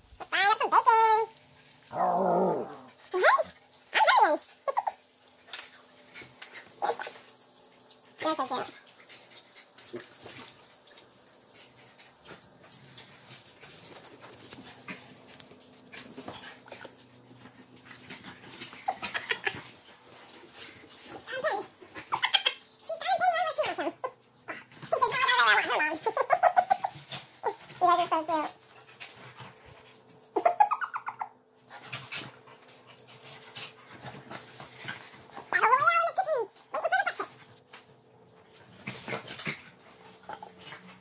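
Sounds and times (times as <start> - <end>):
dogs scuffling: 9.4 - 23.9, 31.6 - 41.0
dogs whining playfully: 24.5 - 27.6, 30.3 - 31.4.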